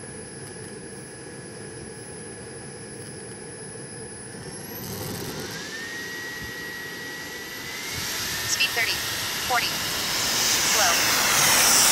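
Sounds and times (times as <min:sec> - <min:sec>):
jet turbine whining: 0:00.0 - 0:11.9.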